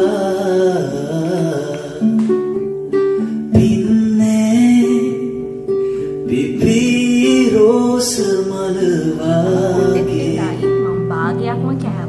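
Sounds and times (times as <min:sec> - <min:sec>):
person singing: 0:00.0 - 0:05.6, 0:06.2 - 0:11.6
song with acoustic guitar: 0:00.0 - 0:12.0.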